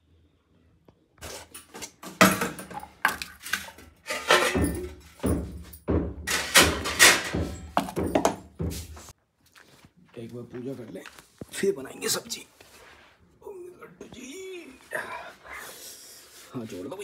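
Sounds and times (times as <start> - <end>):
irregular knocks and thuds: 1.9 - 9.1.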